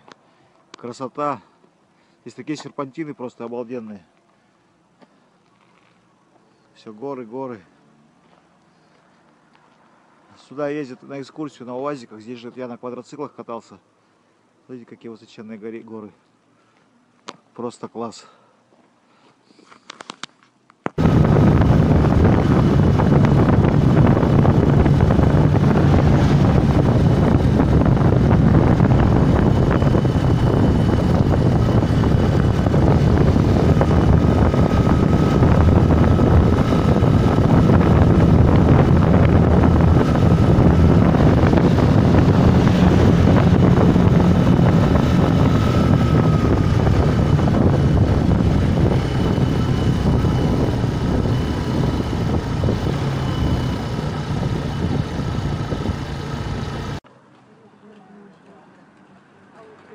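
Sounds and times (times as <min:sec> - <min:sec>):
motorcycle engine running: 0:21.0 - 0:57.0
wind rushing over microphone: 0:21.0 - 0:57.0.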